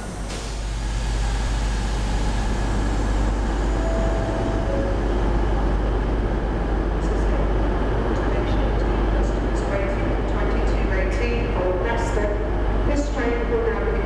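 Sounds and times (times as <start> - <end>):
locomotive low hum: 0.0 - 14.0
faint tone: 3.7 - 5.4.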